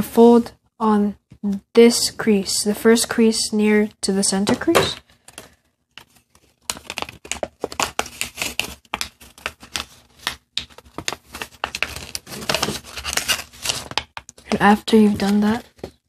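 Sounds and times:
paper crinkling as folded: 0:05.1 - 0:14.2.

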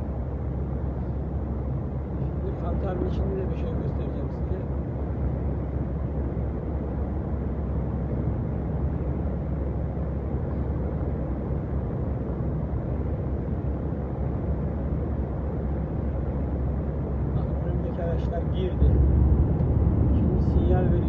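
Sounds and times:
truck diesel engine drone: 0:15.1 - 0:21.0.

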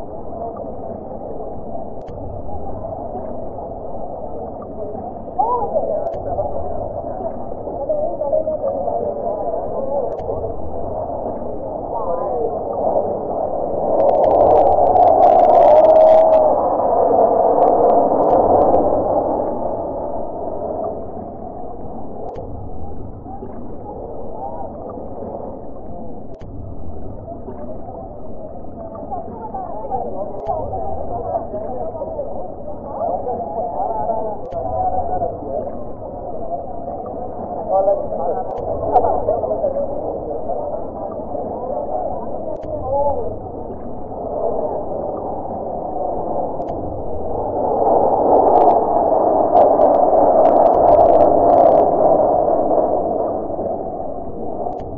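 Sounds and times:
low steady rumble: 0:00.0 - 0:54.9.

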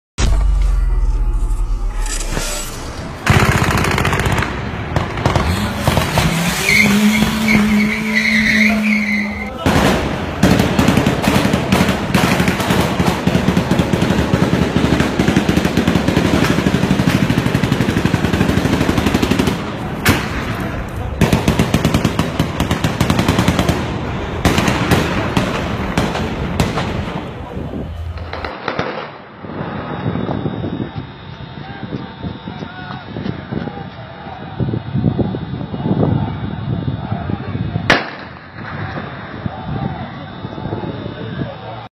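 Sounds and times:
pitched hum: 0:00.2 - 0:10.5
automatic gunfire: 0:03.3 - 0:06.3, 0:09.6 - 0:27.1.

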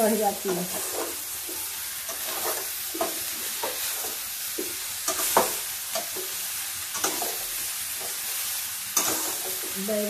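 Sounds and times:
vegetables sizzling in oil: 0:00.0 - 0:10.0
steel spoon scraping pan: 0:00.5 - 0:06.2, 0:09.0 - 0:09.7.

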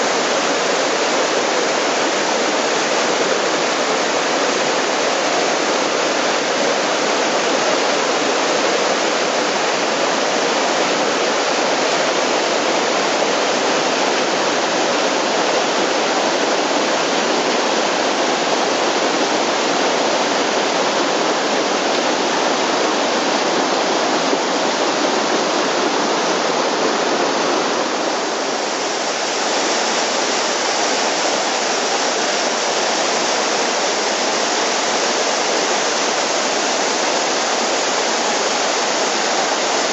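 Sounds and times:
stream rushing over rocks: 0:00.0 - 0:39.9.

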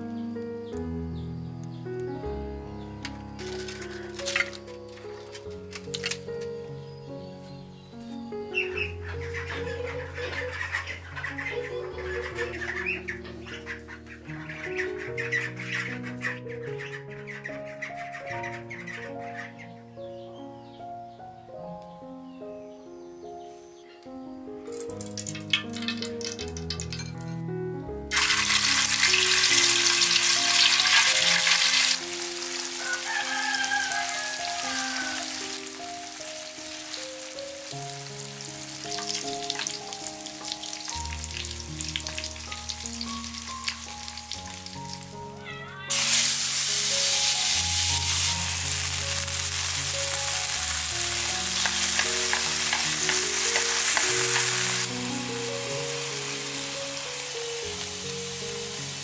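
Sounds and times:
soft background music: 0:00.0 - 0:59.0
oil sizzling in a pan: 0:24.7 - 0:27.3, 0:28.1 - 0:45.3, 0:45.9 - 0:59.0
food being stirred: 0:47.8 - 0:54.9.

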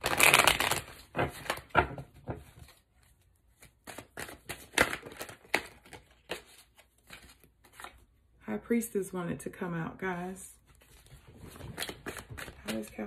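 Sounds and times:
cards riffle shuffling: 0:10.8 - 0:13.0.

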